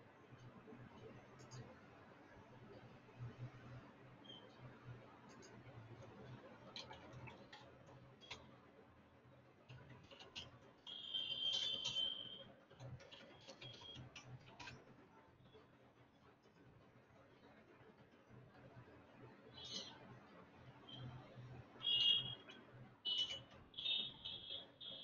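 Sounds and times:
keyboard typing: 9.7s - 14.8s.

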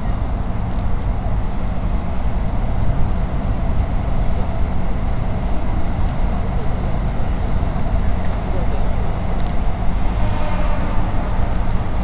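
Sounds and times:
low city rumble: 0.0s - 12.0s.

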